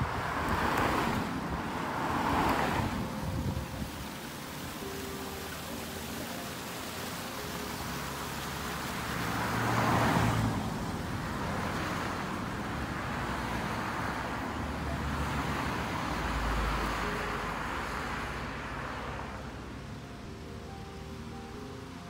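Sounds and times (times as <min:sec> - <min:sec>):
wind on microphone: 0:00.0 - 0:04.7
stream running water: 0:00.0 - 0:22.0.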